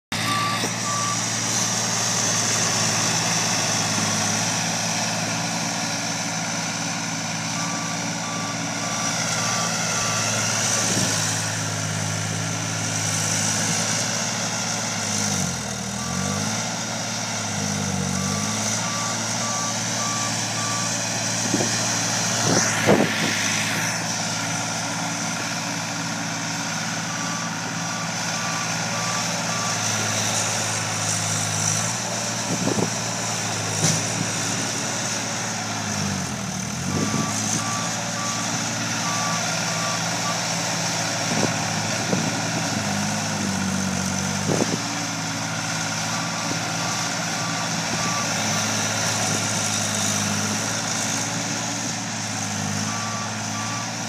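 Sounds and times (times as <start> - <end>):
reversing alarm beeping: 0.1 - 4.6, 7.5 - 11.6, 16.0 - 16.5, 17.7 - 24.1, 27.0 - 30.4, 36.8 - 40.6, 52.7 - 54.0
skid steer engine running: 0.1 - 54.0.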